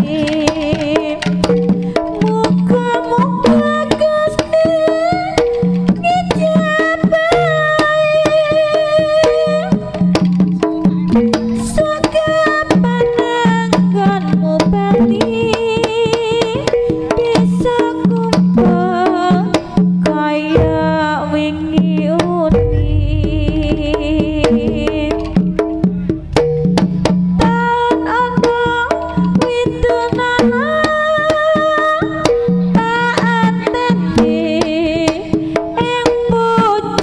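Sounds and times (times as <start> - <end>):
deep low tone: 22.5 - 26.1.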